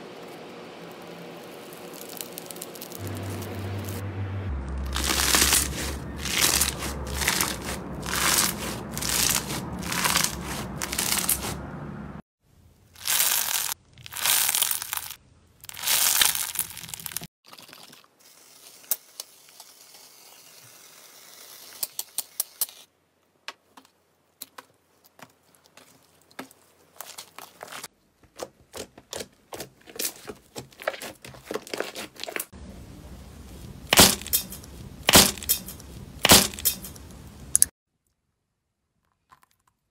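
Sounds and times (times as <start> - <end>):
slime crackling and popping: 0.3 - 3.5, 4.9 - 11.5, 13.0 - 18.0
slime squishing: 4.9 - 11.6
foam hissing from spray can: 18.2 - 22.8.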